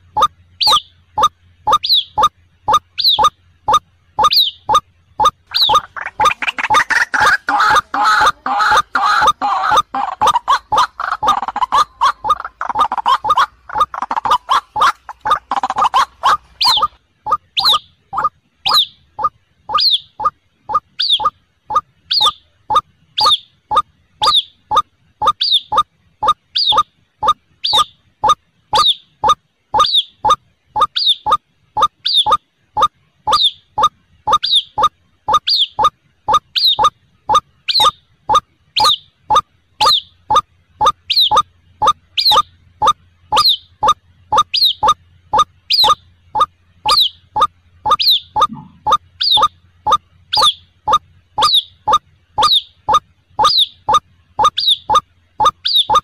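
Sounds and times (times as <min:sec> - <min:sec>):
waterhen calling: 0:00.0 - 0:42.5, 0:44.4 - 0:56.0.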